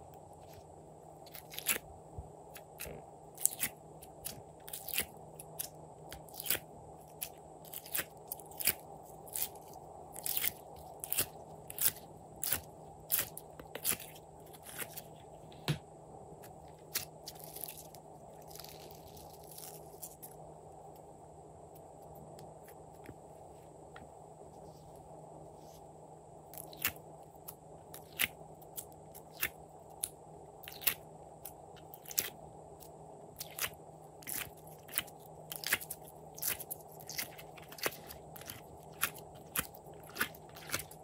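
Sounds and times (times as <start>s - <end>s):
low background hum: 0.0s - 41.0s
slime crackling and popping: 33.4s - 41.0s.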